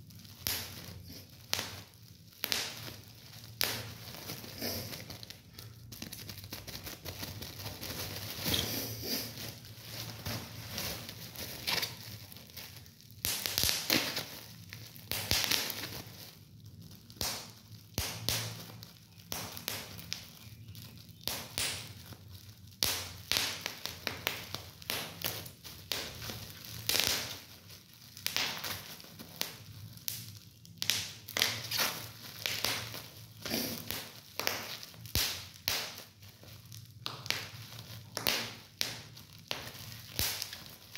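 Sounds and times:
bubble wrap crinkling: 0.0 - 40.9
bubble wrap popping: 0.0 - 40.9.

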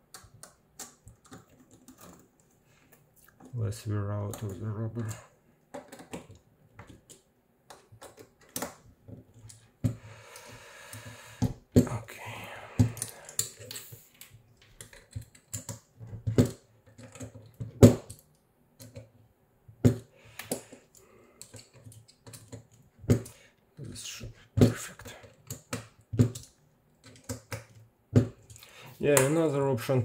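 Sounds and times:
plastic and metal parts clicking: 0.1 - 3.5, 4.2 - 9.7, 12.8 - 19.2, 19.8 - 23.9, 25.0 - 29.4.

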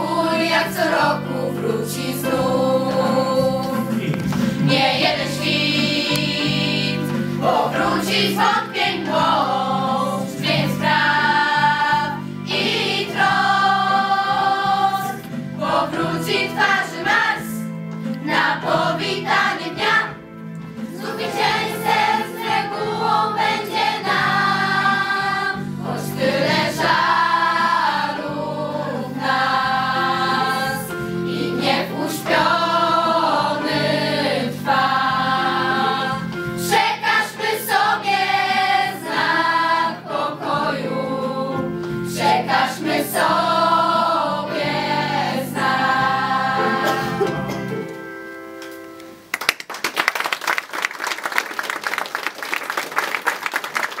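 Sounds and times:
children's choir singing: 0.0 - 47.8
audience applause: 49.3 - 54.0.

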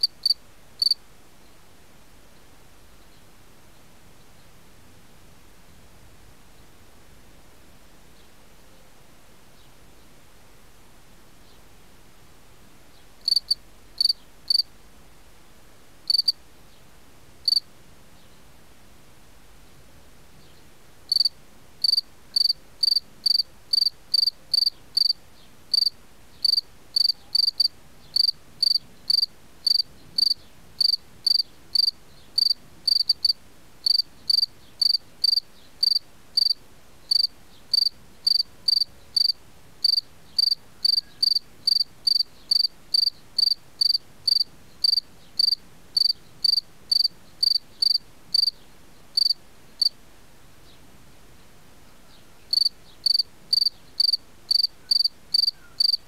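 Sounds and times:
cricket chirping: 0.0 - 1.0, 13.2 - 14.7, 16.1 - 16.4, 17.4 - 17.6, 21.1 - 48.6, 49.2 - 49.9, 52.5 - 56.0.

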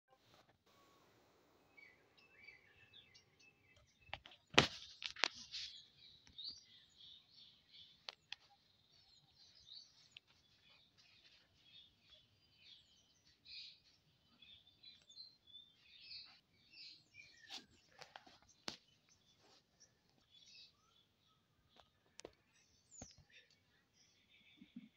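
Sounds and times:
small birds chirping: 0.2 - 24.9.

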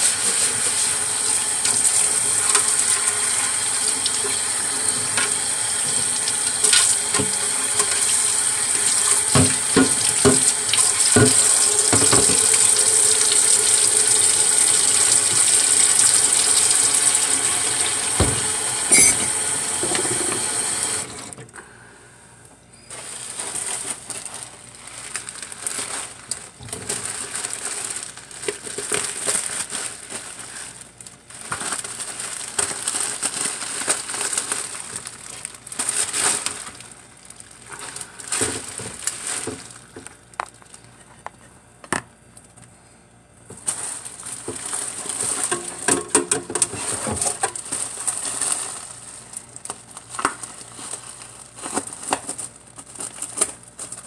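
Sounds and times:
plastic bag crinkling: 0.0 - 18.0, 22.9 - 41.2, 43.5 - 54.0
running tap: 0.0 - 21.1.

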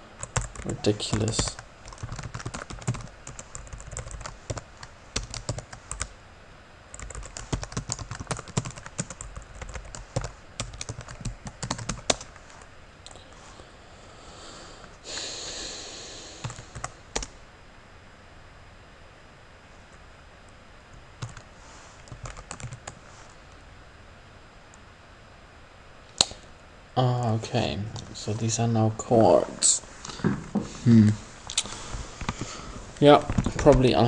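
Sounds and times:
typing on computer keyboard: 0.2 - 6.1, 6.9 - 12.4, 16.4 - 17.3, 21.2 - 21.4, 22.1 - 23.0.

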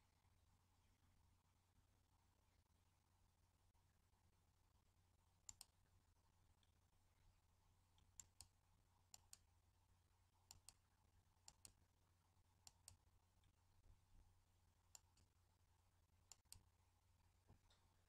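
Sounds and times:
low steady hum: 0.0 - 18.0
computer mouse clicks: 5.4 - 5.8, 8.0 - 8.5, 9.1 - 9.5, 10.5 - 10.8, 11.4 - 11.8, 12.6 - 13.0, 14.9 - 15.3, 16.3 - 16.7.

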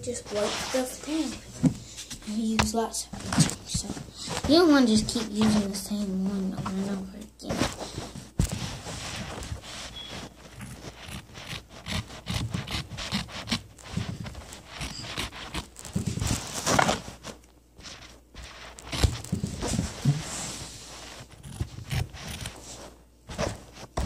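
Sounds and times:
cloth rubbing on microphone: 0.0 - 2.4, 7.4 - 24.0.

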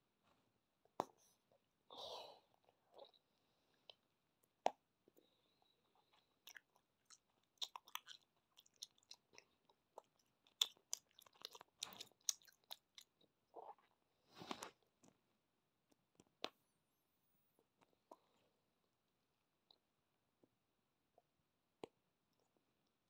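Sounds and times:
gum chewing mouth smacks: 6.4 - 13.9.

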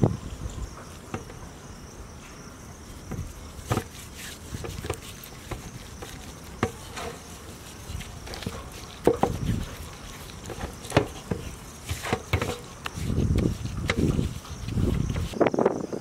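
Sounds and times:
insects chirring: 0.0 - 16.0
hands rubbing meat squishing: 3.6 - 15.4.

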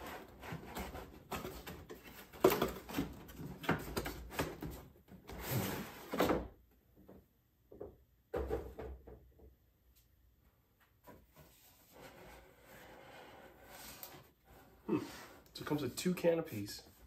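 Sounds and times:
cardboard scraping and rustling: 0.0 - 6.4.

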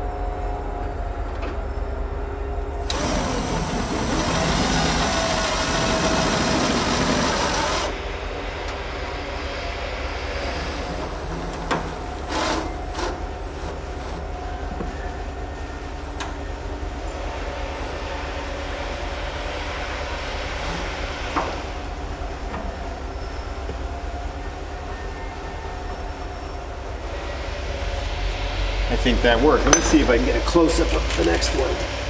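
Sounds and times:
cordless drill driving screw: 2.8 - 8.0.

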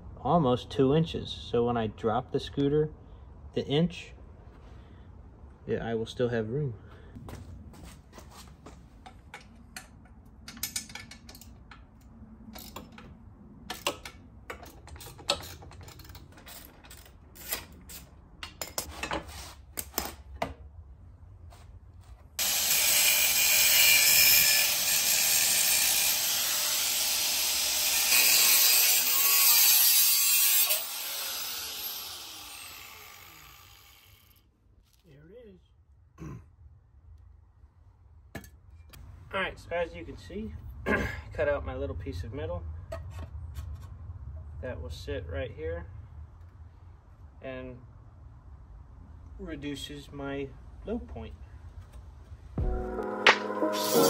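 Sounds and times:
angle grinder cutting metal: 22.4 - 34.4, 53.6 - 54.0.

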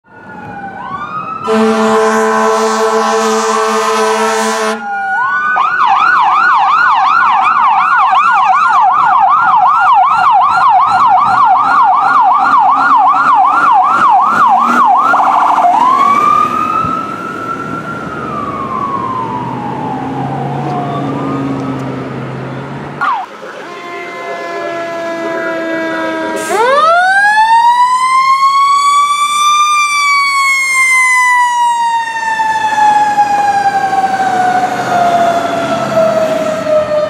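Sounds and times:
electronic siren: 0.1 - 22.0, 23.0 - 37.0
air horn blasting: 1.4 - 4.9, 23.4 - 27.0.

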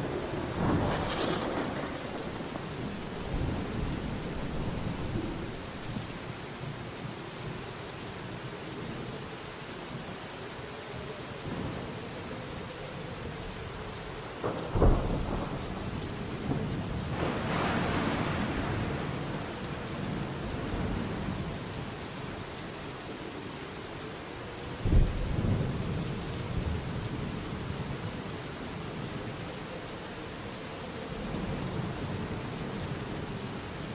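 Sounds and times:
thunder clap rumbling: 0.0 - 6.2, 14.4 - 21.0
steady rainfall: 0.0 - 33.9.

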